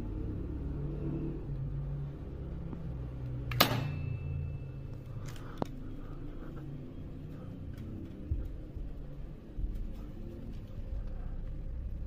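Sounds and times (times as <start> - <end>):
low steady hum: 0.0 - 12.0
high ringing: 3.5 - 5.1.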